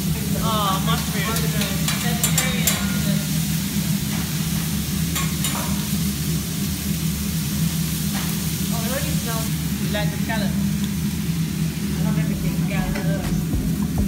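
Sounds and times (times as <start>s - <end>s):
food sizzling on a griddle: 0.0s - 13.9s
low hum: 11.8s - 14.0s.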